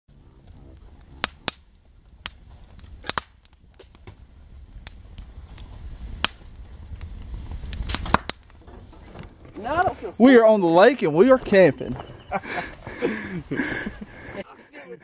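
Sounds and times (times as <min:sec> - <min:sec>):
low rumble: 0:00.1 - 0:10.2
campfire crackling and popping: 0:00.1 - 0:14.5.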